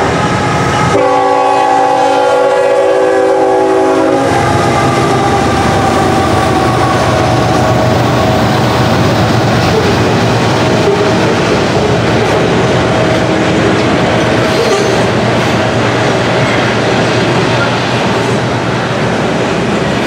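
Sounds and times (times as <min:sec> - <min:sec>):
locomotive horn: 0:00.0 - 0:08.3
steel wheels on rails: 0:00.0 - 0:20.0
train cars rolling past: 0:00.0 - 0:20.0.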